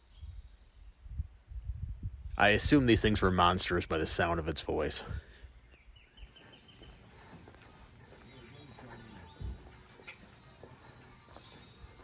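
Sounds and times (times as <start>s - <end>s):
insect drone: 0.0s - 12.0s
faint bird chirps: 5.5s - 12.0s.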